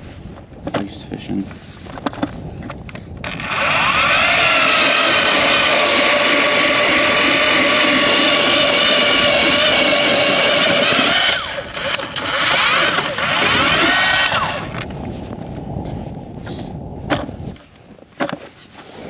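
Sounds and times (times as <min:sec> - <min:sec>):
ice auger motor whining: 0:03.2 - 0:14.9.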